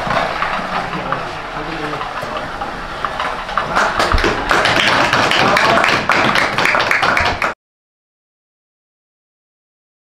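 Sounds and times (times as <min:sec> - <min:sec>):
people clapping: 0:03.1 - 0:07.6.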